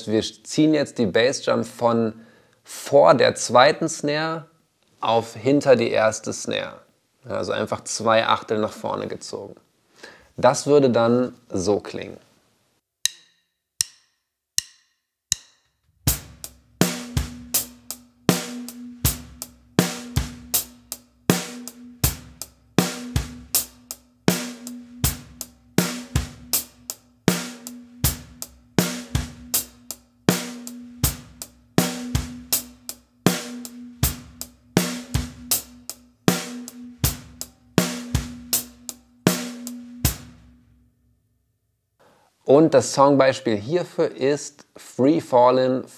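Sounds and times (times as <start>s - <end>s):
acoustic drum kit groove: 15.3s - 40.8s.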